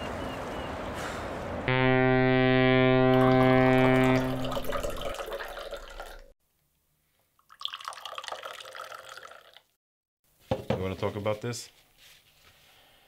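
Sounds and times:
held low musical note: 1.7s - 5.2s
tea pouring into a glass: 3.2s - 6.3s, 7.4s - 9.7s.

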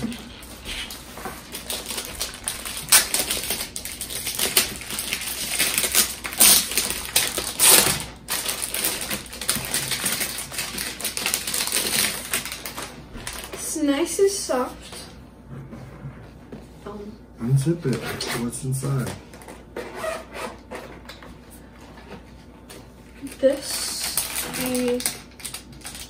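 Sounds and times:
plastic bags crinkling: 0.0s - 13.7s, 23.2s - 26.0s.

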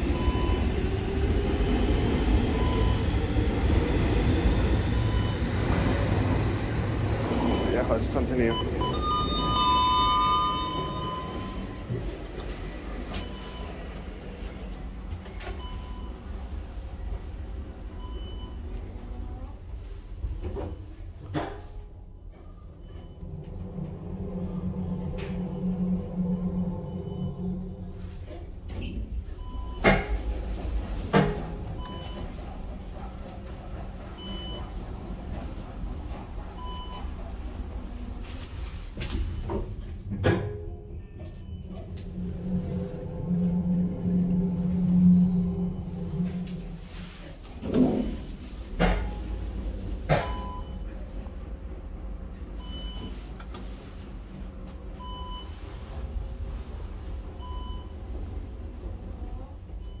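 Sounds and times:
elevator running with low hum: 0.0s - 60.0s
short electronic beep: 8.5s - 11.9s.

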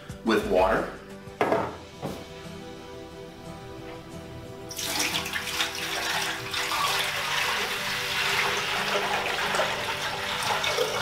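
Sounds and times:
water pouring into plastic basin: 4.7s - 11.0s.

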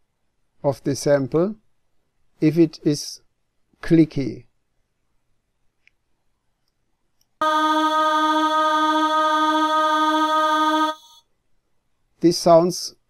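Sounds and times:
choir sung note: 7.4s - 11.2s.

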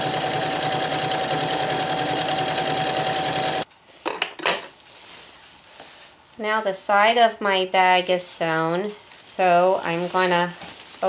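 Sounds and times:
sewing machine stitching: 0.0s - 3.6s.

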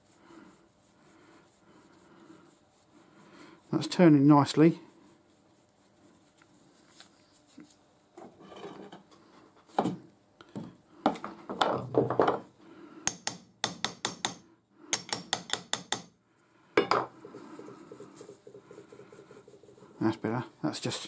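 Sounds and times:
hammer tapping on metal: 13.1s - 16.1s.

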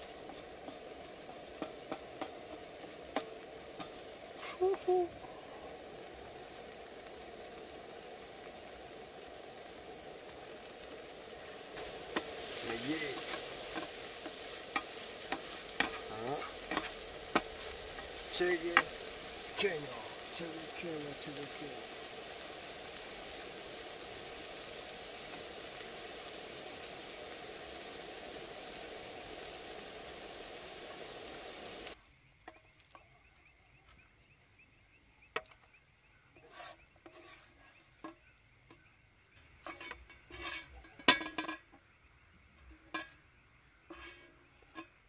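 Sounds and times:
eggs sizzling in a frying pan: 0.0s - 45.0s
spatula scraping a pan: 11.4s - 26.3s, 36.4s - 38.3s, 39.6s - 41.6s, 43.8s - 45.0s.

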